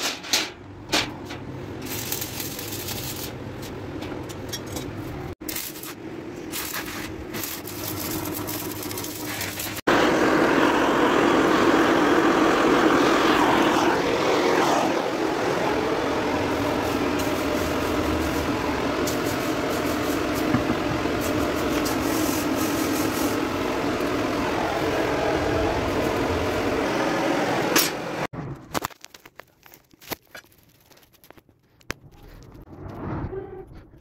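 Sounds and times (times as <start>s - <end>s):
forge fire roaring: 7.6s - 28.3s.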